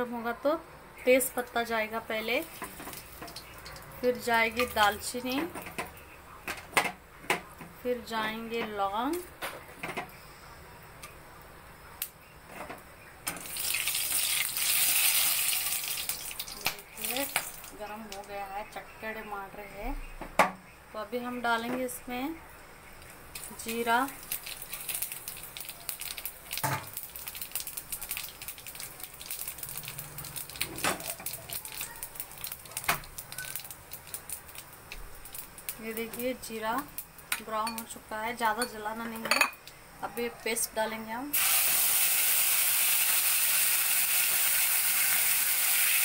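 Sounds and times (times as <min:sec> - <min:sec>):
spices sizzling in hot oil: 0:01.2 - 0:05.8, 0:13.3 - 0:18.6, 0:23.0 - 0:39.7, 0:41.2 - 0:46.0.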